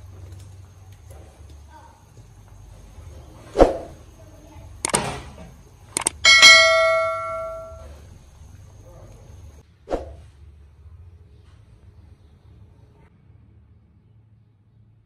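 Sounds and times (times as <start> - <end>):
notification bell ding: 6.2 - 7.9.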